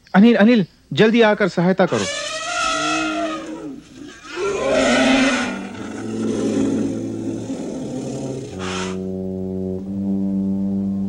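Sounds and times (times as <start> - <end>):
elephant trumpeting: 1.9 - 9.1
low brass notes: 1.9 - 11.0.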